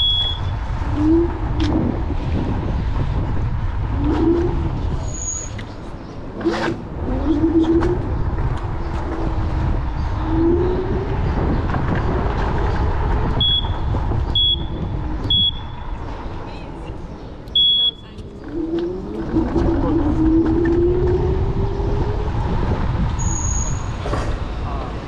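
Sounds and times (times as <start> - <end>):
short high beeps: 0.0 - 0.5, 14.4 - 15.8, 17.6 - 18.0
wind rumble on microphone: 0.0 - 25.0.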